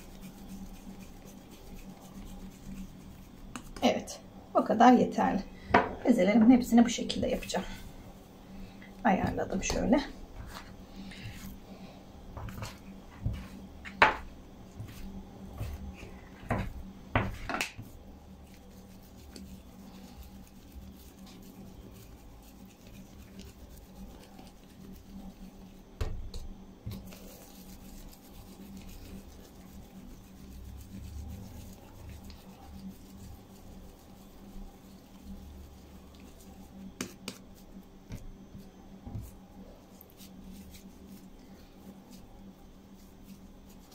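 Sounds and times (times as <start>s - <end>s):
hands rubbing dough: 0.0s - 5.5s, 6.1s - 43.9s
dough scraper knocking on countertop: 5.7s - 6.0s, 13.2s - 14.3s, 16.4s - 17.8s.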